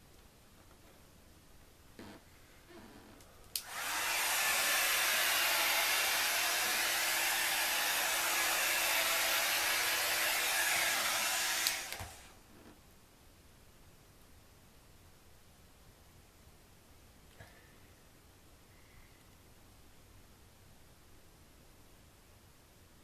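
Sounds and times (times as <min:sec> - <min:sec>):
hair dryer switch click: 0:03.5 - 0:04.6, 0:11.3 - 0:12.2
hair dryer blowing: 0:03.6 - 0:12.4.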